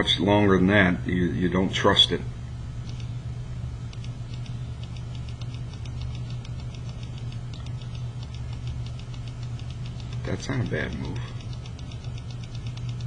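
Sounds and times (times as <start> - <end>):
low electrical hum: 0.0 - 13.0
fast faint ticking: 3.9 - 13.0.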